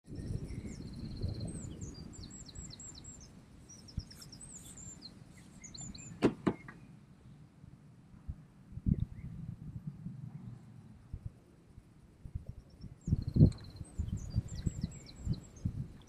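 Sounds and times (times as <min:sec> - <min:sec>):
small birds chirping: 0:00.1 - 0:07.6, 0:12.3 - 0:16.0
low outdoor rumble: 0:00.1 - 0:16.0
sharp knocks: 0:06.2 - 0:06.8.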